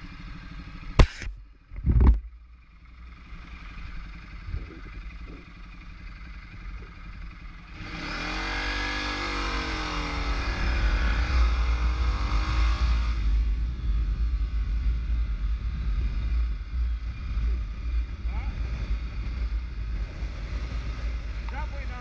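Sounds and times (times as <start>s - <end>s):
motorcycle engine running: 0.0s - 22.0s
wind rumbling on microphone: 1.7s - 2.4s, 4.4s - 5.6s, 9.3s - 22.0s.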